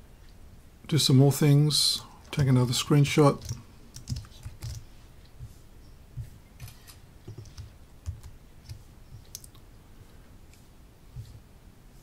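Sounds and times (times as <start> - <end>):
keyboard and mouse clicks: 3.4 - 4.9, 6.2 - 9.6.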